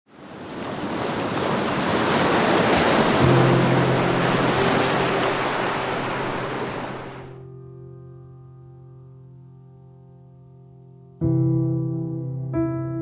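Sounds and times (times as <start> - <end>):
rushing water: 0.1 - 7.4
wind: 0.1 - 7.4.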